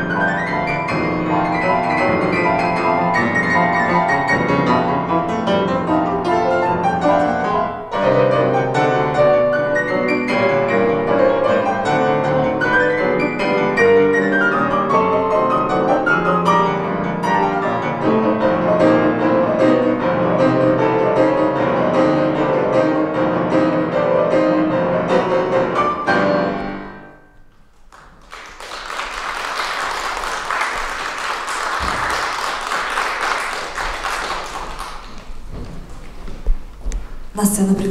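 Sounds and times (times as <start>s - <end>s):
classical piano piece: 0.0s - 37.9s
audience applauding: 27.7s - 35.4s.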